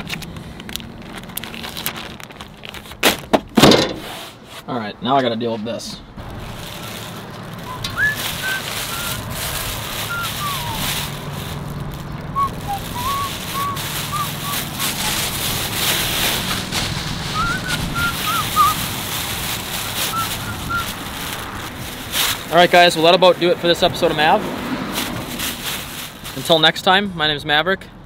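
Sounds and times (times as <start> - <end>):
plastic bag crinkling: 0.0 - 3.1, 6.2 - 23.2, 24.9 - 26.6
person whistling a tune: 7.7 - 9.2, 10.1 - 10.9, 12.4 - 14.6, 17.4 - 18.8.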